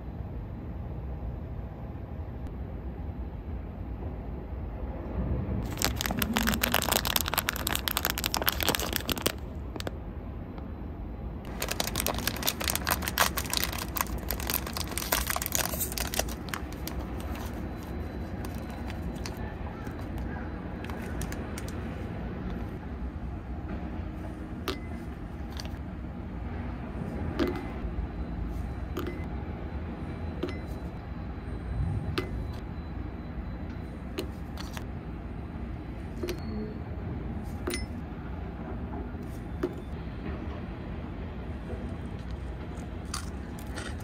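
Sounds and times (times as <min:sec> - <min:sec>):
snack packaging crinkling: 0:05.6 - 0:09.9, 0:11.5 - 0:20.2, 0:20.8 - 0:21.9, 0:42.1 - 0:44.0.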